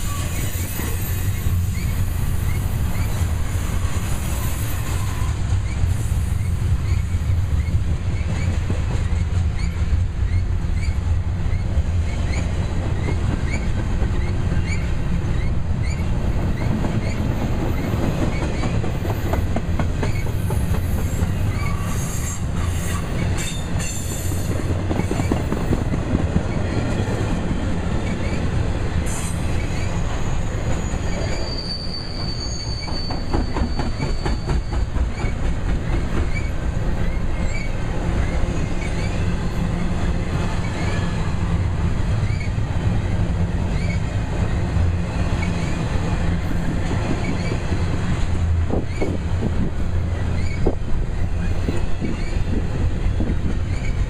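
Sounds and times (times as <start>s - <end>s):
wheel flange squeal: 0.0s - 8.6s, 29.1s - 35.3s
train wheels rumbling on rails: 0.0s - 54.0s.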